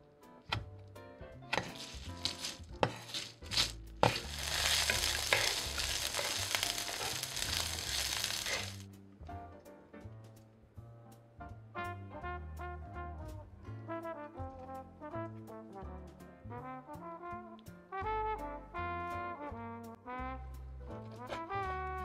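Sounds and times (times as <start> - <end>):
soft background music: 0.0 - 22.0
knife chopping on wooden board: 1.5 - 6.4
hot oil sizzling in a pan: 1.9 - 8.9.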